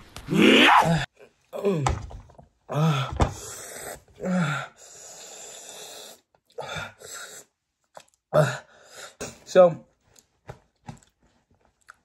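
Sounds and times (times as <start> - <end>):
person groaning: 0.3 - 2.0, 2.7 - 3.4.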